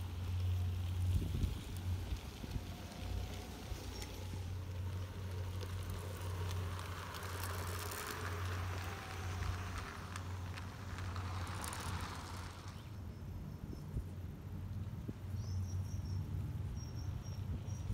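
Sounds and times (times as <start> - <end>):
model train wheels on rails: 0.0 - 14.9.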